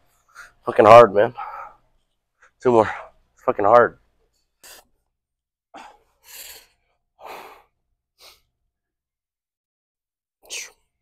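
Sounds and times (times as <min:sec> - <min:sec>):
person breathing hard: 0:05.8 - 0:08.5.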